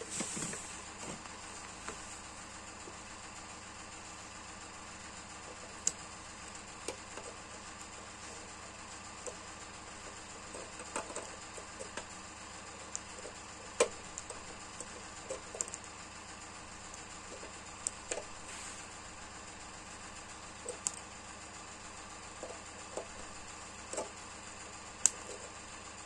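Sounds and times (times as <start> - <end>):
small clicks and taps: 10.0 - 15.9, 20.6 - 21.0, 23.9 - 25.6.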